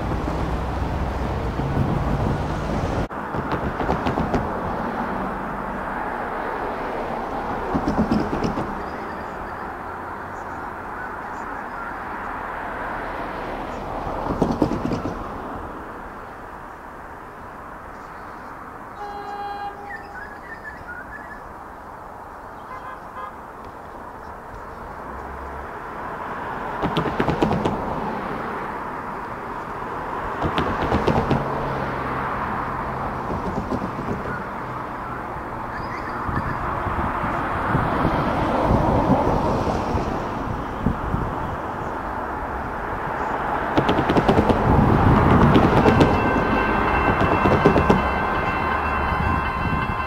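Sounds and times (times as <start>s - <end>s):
electric train rumble: 0.0s - 11.9s, 18.8s - 21.0s, 25.0s - 50.0s
wheels clicking over rail joints: 7.3s - 9.4s, 13.8s - 15.8s, 26.7s - 28.0s, 29.2s - 35.5s, 41.7s - 50.0s
birds chirping: 8.3s - 12.5s, 16.2s - 25.5s, 33.5s - 36.8s.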